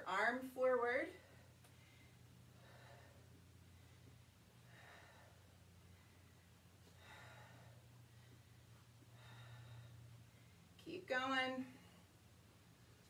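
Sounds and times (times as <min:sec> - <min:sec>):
steady low hum: 0:00.0 - 0:13.0
woman breathing softly: 0:01.1 - 0:10.8.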